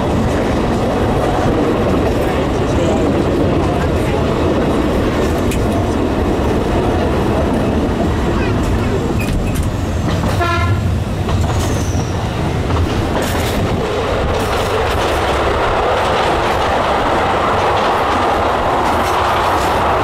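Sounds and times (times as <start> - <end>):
train wheels rumbling on rail: 0.0 - 20.0
train horn blast: 10.3 - 10.9.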